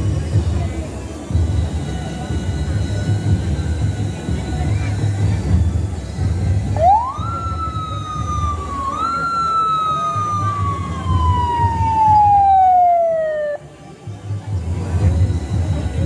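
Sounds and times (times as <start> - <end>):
police siren wailing: 6.8 - 13.7.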